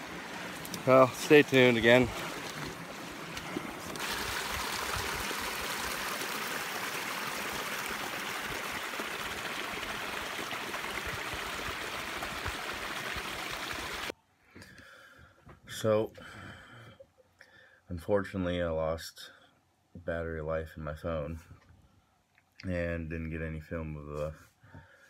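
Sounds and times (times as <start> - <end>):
brook splashing over rocks: 0.0 - 14.1.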